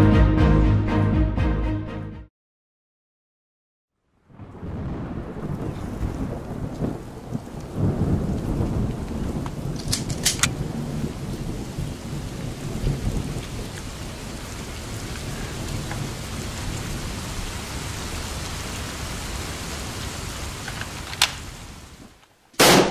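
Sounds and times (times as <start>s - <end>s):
steady rain: 4.1s - 22.5s
thunder rumble: 4.2s - 22.9s
sharp clicks: 9.8s - 10.5s, 20.7s - 21.4s.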